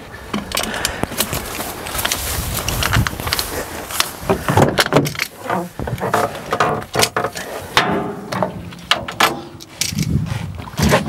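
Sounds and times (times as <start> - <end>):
metal tools clanking: 4.6 - 10.2.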